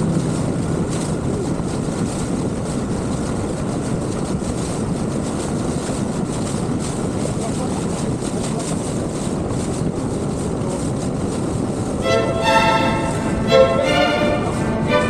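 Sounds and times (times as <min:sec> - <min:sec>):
outboard motor running: 0:00.0 - 0:12.0
water rushing off hull: 0:00.0 - 0:15.0.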